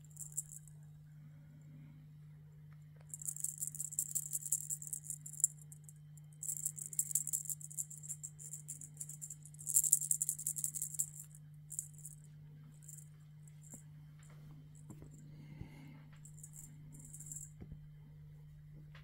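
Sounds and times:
cat toy rattling: 0:00.0 - 0:00.7, 0:03.1 - 0:12.2, 0:12.8 - 0:13.8, 0:16.2 - 0:17.5.

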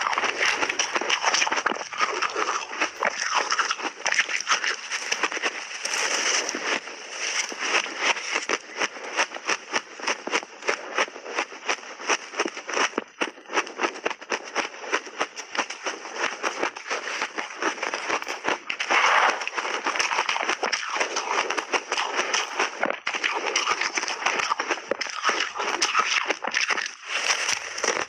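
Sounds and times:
spoon scraping ice: 0:00.0 - 0:08.7, 0:14.4 - 0:28.0
crunching of shaved ice being chewed: 0:00.0 - 0:28.0.

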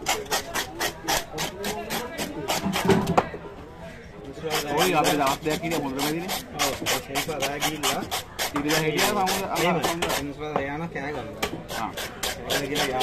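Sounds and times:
knife scraping fish scales: 0:00.0 - 0:03.0, 0:04.4 - 0:10.4, 0:11.6 - 0:13.0.

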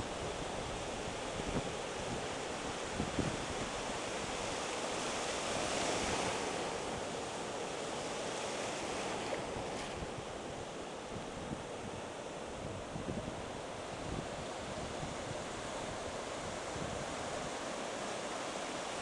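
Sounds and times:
ocean waves breaking: 0:00.2 - 0:19.0.

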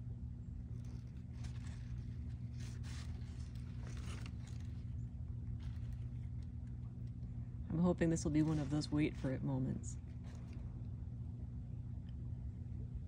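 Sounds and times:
steady low hum: 0:00.0 - 0:13.0
paper and cardboard rustling: 0:00.7 - 0:07.2, 0:08.0 - 0:10.7.

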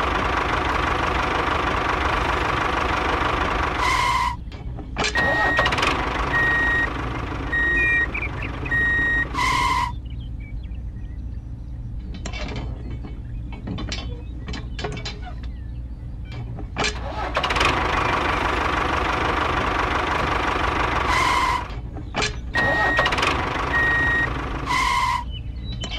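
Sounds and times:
model tractor engine running: 0:00.0 - 0:04.3, 0:05.0 - 0:09.9, 0:16.8 - 0:25.2
reversing alarm beeping: 0:05.2 - 0:10.0, 0:22.6 - 0:25.3
metal hitch clicks: 0:12.1 - 0:15.5, 0:16.3 - 0:17.4, 0:21.6 - 0:23.4.

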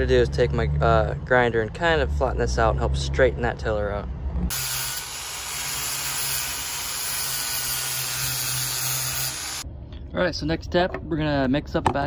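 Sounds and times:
angle grinder grinding wood: 0:04.5 - 0:09.6.

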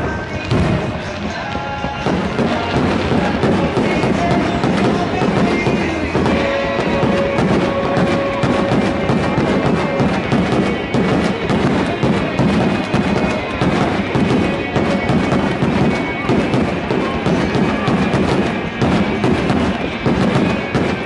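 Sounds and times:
firework sparks crackling: 0:00.0 - 0:21.0
music playing: 0:00.0 - 0:21.0
firework shells thudding: 0:01.9 - 0:21.0.

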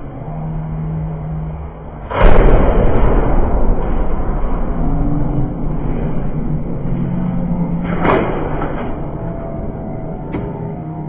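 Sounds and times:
motor hum: 0:00.0 - 0:11.0
rattling rumbling noise: 0:00.0 - 0:11.0
loud weapon crash: 0:02.1 - 0:04.4.

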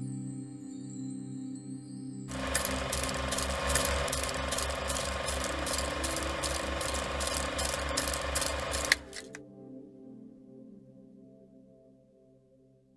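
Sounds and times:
soft background music: 0:00.0 - 0:12.9
rapid mechanical clicking: 0:02.3 - 0:09.4.

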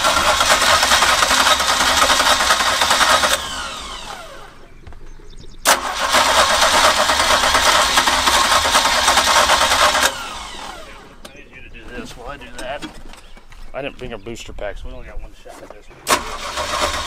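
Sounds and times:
boat engine cranking by starter: 0:00.0 - 0:04.5, 0:05.6 - 0:10.9, 0:16.0 - 0:17.0.

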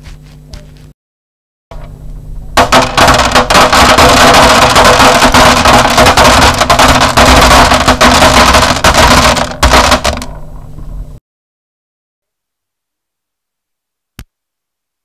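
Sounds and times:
dry pasta rattling into container: 0:02.6 - 0:10.3.

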